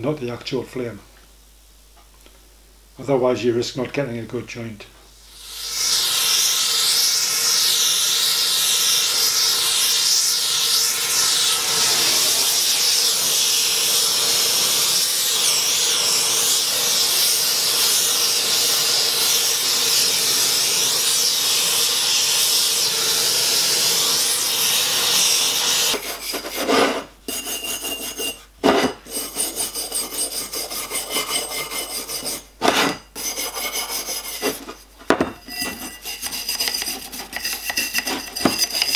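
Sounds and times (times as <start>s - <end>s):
gas torch flame hissing: 5.1s - 27.1s
hand file rasping on copper: 5.4s - 28.4s, 29.1s - 38.9s.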